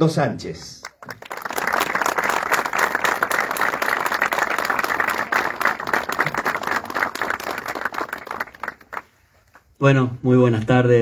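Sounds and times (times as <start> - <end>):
crowd applauding: 0.8 - 9.2.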